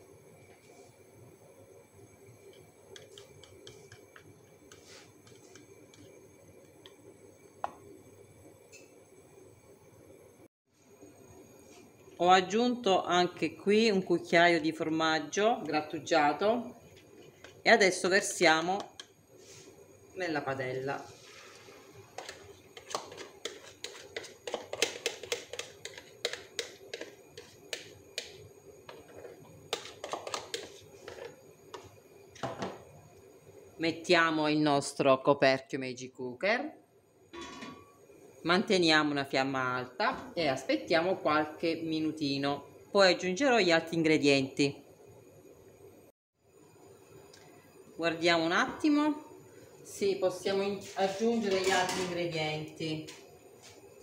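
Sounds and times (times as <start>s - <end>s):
eggs sizzling and crackling in oil: 0.0s - 14.5s, 15.6s - 34.2s, 44.9s - 48.0s
utensil clicking against bowl: 2.5s - 6.0s, 22.2s - 28.4s.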